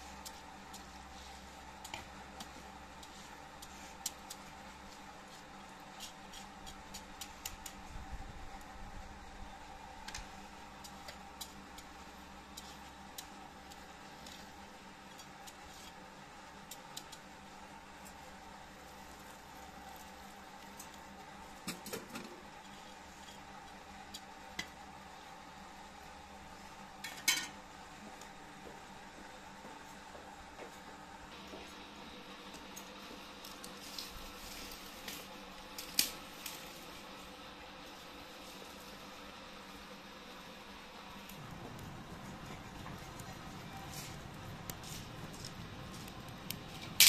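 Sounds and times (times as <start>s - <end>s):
crackles and pops in boiling oil: 0.0s - 22.6s, 23.4s - 25.0s, 32.4s - 36.8s, 41.2s - 47.0s.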